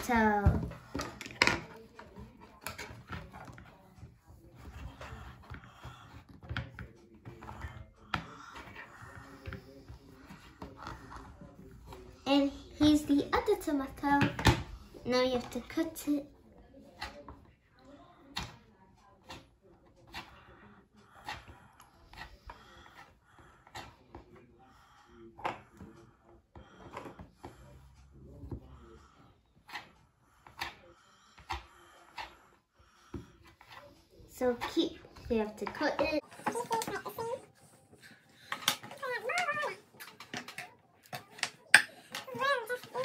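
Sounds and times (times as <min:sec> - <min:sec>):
plastic knives tapping and scraping: 0:00.0 - 0:11.4, 0:18.3 - 0:18.6, 0:29.7 - 0:30.8, 0:33.1 - 0:37.4, 0:38.4 - 0:43.0.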